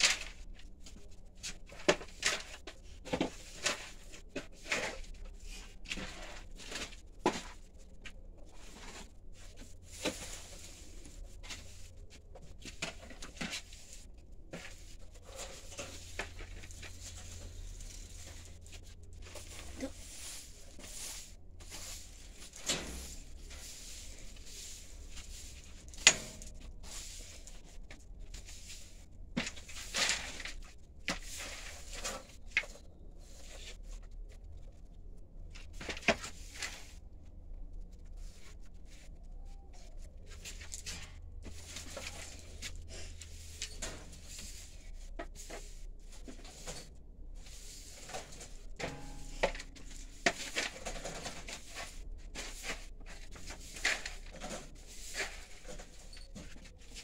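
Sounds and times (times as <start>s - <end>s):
rustling of hay: 8.4s - 12.3s, 13.6s - 26.0s.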